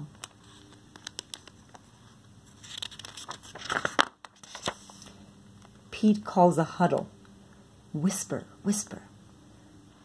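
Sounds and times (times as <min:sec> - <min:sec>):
book page turning: 0:00.1 - 0:05.8.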